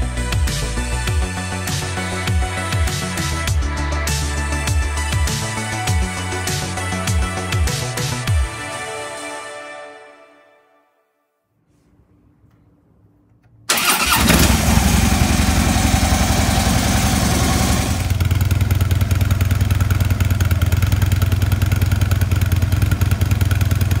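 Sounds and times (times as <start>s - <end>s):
motorcycle engine starting and idling: 13.6s - 24.0s.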